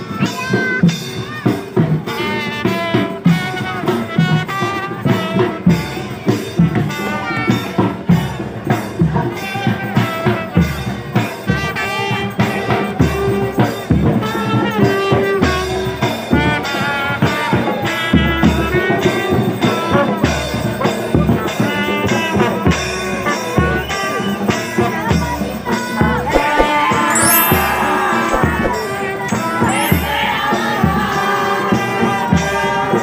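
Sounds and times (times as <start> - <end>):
bass drum and cymbals: 26.3 - 29.0, 29.7 - 31.0.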